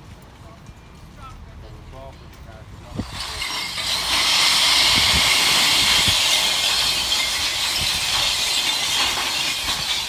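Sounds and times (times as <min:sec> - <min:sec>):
glass bottles crashing and breaking: 0:03.0 - 0:10.0.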